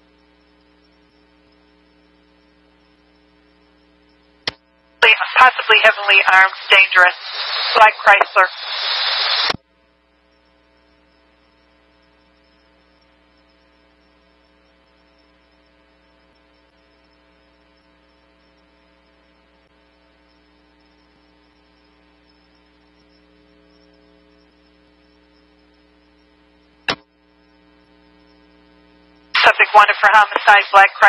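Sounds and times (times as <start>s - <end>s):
electrical hum with faint hiss: 0.0s - 31.0s
radio noise burst: 5.0s - 9.6s, 20.1s - 31.0s.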